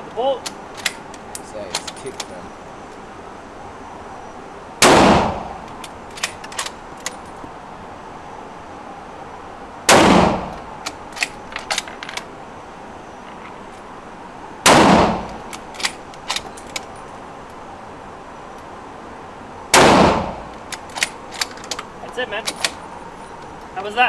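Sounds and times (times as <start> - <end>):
rifle shots with echo: 4.8 - 5.6, 9.9 - 10.5, 14.6 - 15.3, 19.7 - 20.5
rifle bolt clicks: 20.5 - 21.9.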